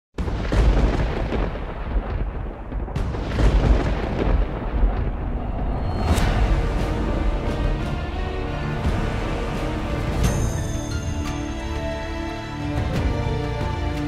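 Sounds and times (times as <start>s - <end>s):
thunder-like booms: 0.2s - 10.6s
deep continuous rumble: 2.0s - 10.3s
sharp crash: 2.9s - 8.1s.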